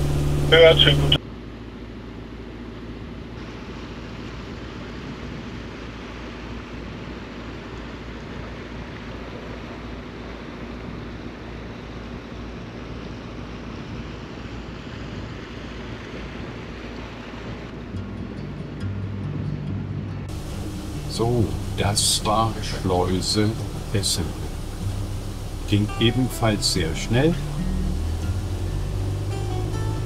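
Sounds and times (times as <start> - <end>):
water rushing: 0.0 - 1.2, 20.3 - 30.0
low engine hum: 0.0 - 30.0
wind rushing: 20.3 - 30.0.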